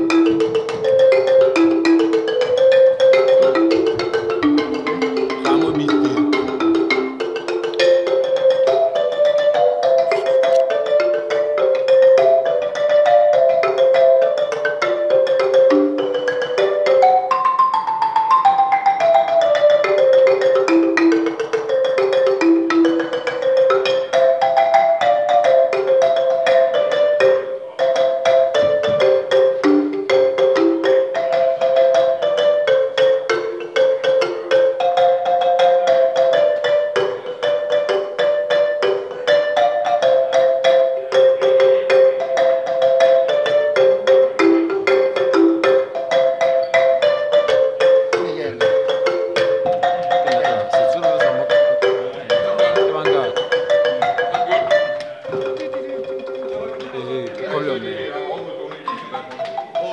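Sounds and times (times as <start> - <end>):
marimba played with mallets: 0.0 - 59.9.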